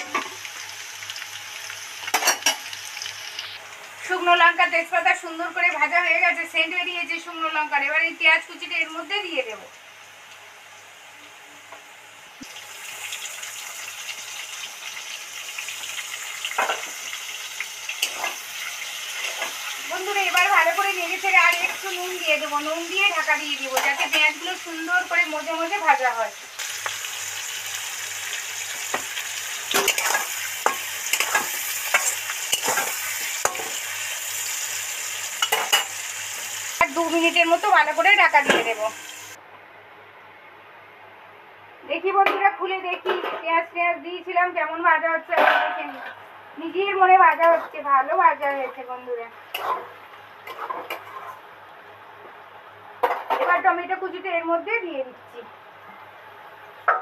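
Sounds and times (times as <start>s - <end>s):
onion sizzling in hot oil: 0.0s - 39.4s
metal spatula scraping pan: 47.4s - 47.9s, 49.6s - 51.4s.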